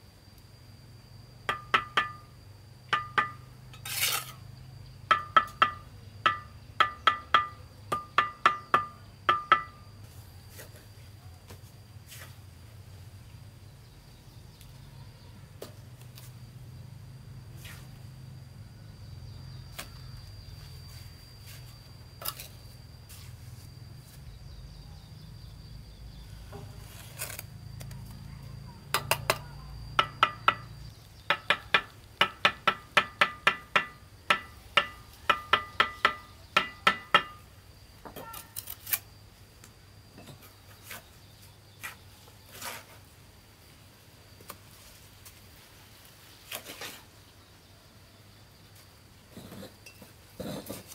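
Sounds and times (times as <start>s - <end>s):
trowel tapping bricks: 1.5s - 2.3s, 2.9s - 4.4s, 5.1s - 9.8s, 29.0s - 37.4s
knocks and scrapes: 3.0s - 4.4s, 20.6s - 24.3s, 26.5s - 28.0s, 40.2s - 43.1s, 46.4s - 47.1s, 49.3s - 50.9s.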